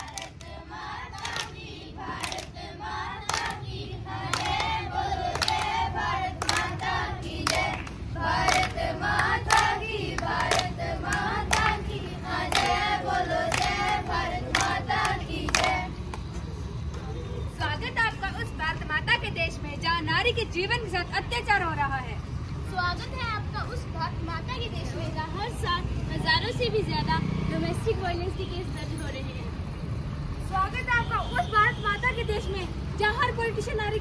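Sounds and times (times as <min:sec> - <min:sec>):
hand claps: 0:00.0 - 0:01.6, 0:02.2 - 0:02.6, 0:03.2 - 0:03.6, 0:04.3 - 0:05.8, 0:06.4 - 0:11.8, 0:12.5 - 0:16.2.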